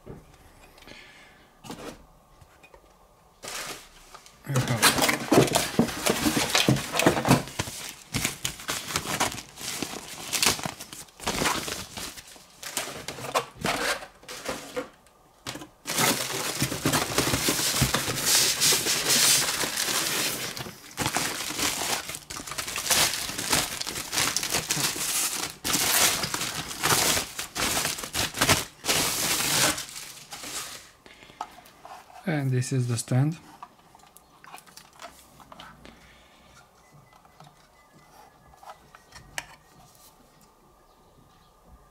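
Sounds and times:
plastic packaging crinkling: 0:04.6 - 0:14.9, 0:15.5 - 0:31.0.

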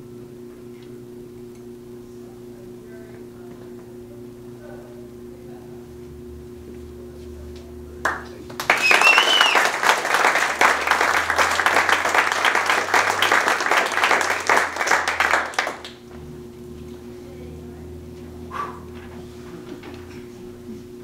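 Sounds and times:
audience applauding: 0:08.0 - 0:16.0
high whistle: 0:08.7 - 0:09.9.

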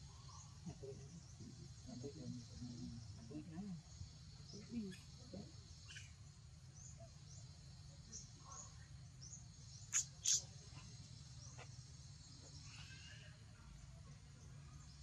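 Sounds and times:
small high chirps: 0:09.7 - 0:13.3.

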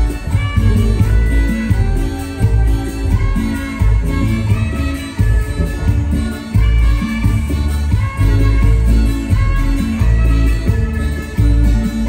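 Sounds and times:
live band instrumental music: 0:00.0 - 0:12.0
pulsing bass beat: 0:00.0 - 0:12.0.

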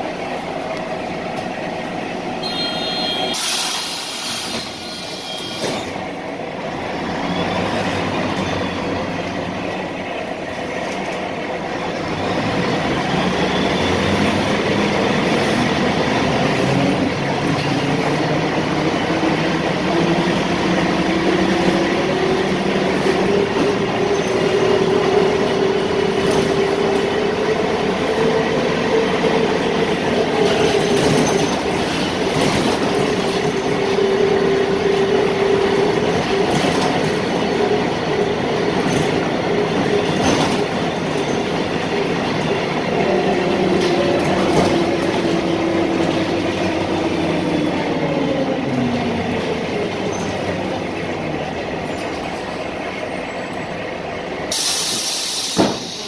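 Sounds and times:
bus engine accelerating with whine: 0:00.0 - 0:56.0
compressed air hiss: 0:03.3 - 0:05.3, 0:54.5 - 0:56.0.

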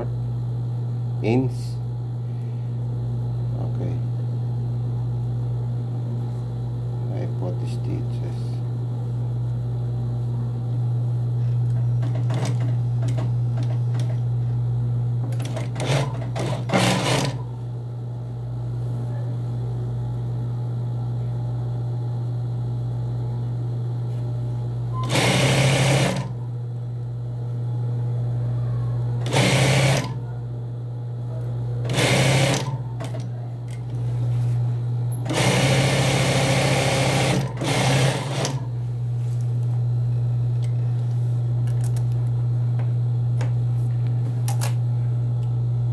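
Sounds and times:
sewing machine motor humming: 0:15.3 - 0:17.4, 0:25.0 - 0:26.4, 0:29.2 - 0:30.2, 0:31.8 - 0:33.2, 0:35.1 - 0:38.7
sewing machine stitching: 0:15.4 - 0:17.4, 0:25.0 - 0:26.4, 0:29.2 - 0:30.2, 0:31.9 - 0:33.2, 0:35.2 - 0:38.7.

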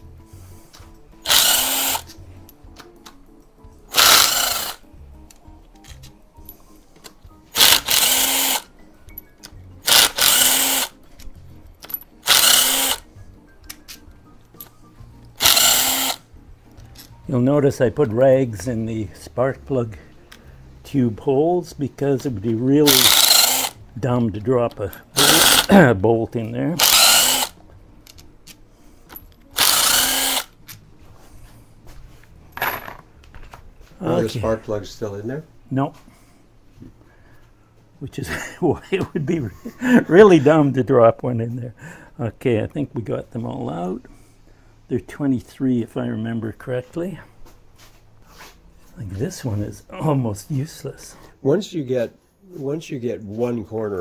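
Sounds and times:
impact driver rising whine: 0:01.3 - 0:02.0, 0:03.9 - 0:04.8, 0:12.3 - 0:13.0, 0:15.4 - 0:16.2, 0:22.9 - 0:23.7, 0:26.8 - 0:27.5, 0:29.6 - 0:30.5
impact driver hammering: 0:03.9 - 0:04.8, 0:09.9 - 0:10.9, 0:12.3 - 0:13.0, 0:22.9 - 0:23.7, 0:26.8 - 0:27.5.

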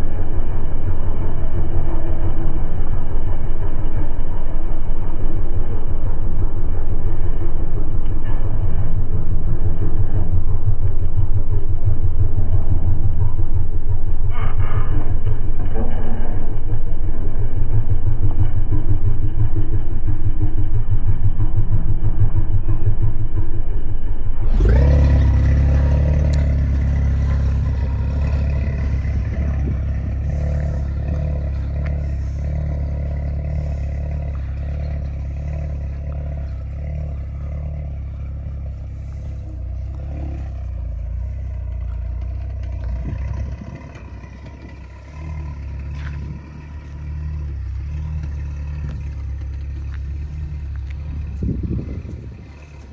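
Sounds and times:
car driving over rough ground: 0:00.0 - 0:52.9
car engine idling: 0:00.0 - 0:52.9.

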